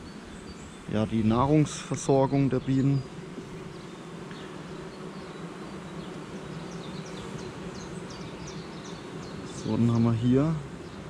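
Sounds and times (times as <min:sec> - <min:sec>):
bees buzzing drone: 0:00.0 - 0:11.0.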